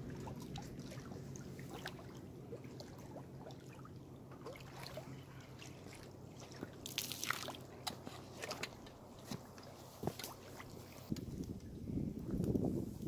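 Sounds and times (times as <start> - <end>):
poured water splashing: 0.0 - 8.8.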